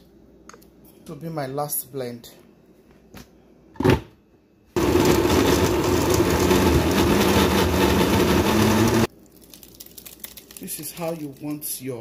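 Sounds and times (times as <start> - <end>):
blender crushing vegetables: 4.8 - 9.1.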